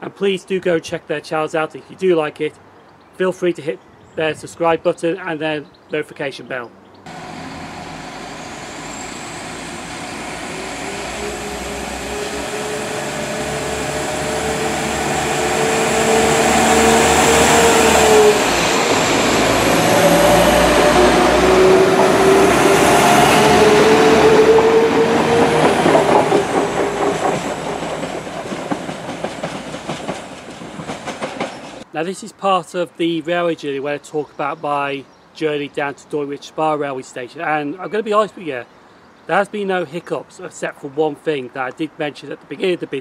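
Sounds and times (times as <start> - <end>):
diesel train engine whine: 7.1 - 31.9
train wheels clattering: 22.0 - 31.9.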